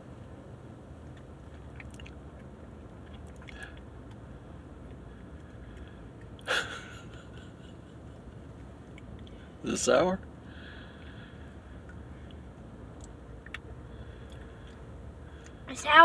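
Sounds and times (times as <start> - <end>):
child chewing snack: 1.0 - 6.6, 10.9 - 15.7
wet mouth clicks: 1.1 - 4.2, 13.0 - 14.8.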